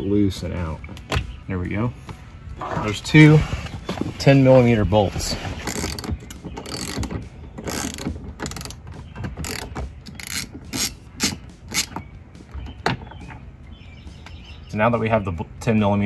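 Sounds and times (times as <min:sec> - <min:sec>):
hand ratchet clicking: 0:05.7 - 0:08.8, 0:09.4 - 0:12.0.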